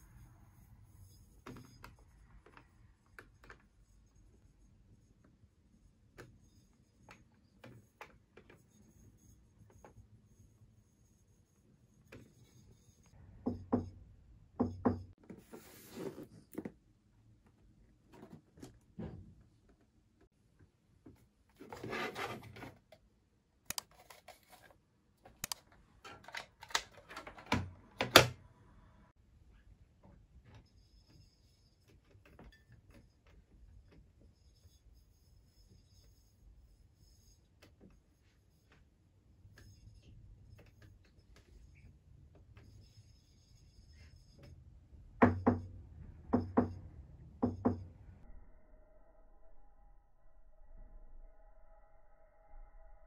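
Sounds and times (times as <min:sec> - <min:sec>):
low hum: 0:47.0 - 0:53.0.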